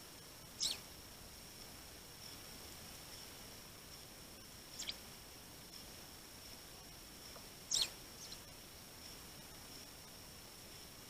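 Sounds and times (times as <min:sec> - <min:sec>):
sparrows chirping: 0:00.6 - 0:01.0, 0:04.7 - 0:05.0, 0:07.7 - 0:08.5.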